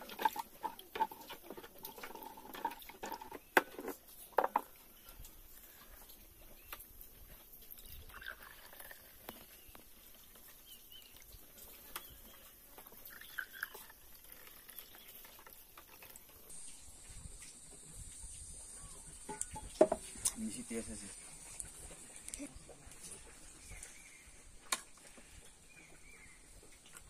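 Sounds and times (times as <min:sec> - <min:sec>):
juice pouring into glasses: 0:07.8 - 0:09.6, 0:12.9 - 0:16.5
faint chirps: 0:16.4 - 0:24.5.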